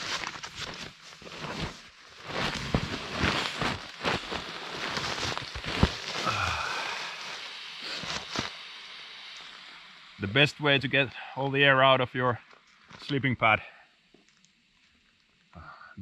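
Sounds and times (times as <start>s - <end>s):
knocks and crackles: 0.0s - 6.4s
sleeping pad crinkling: 0.0s - 8.6s.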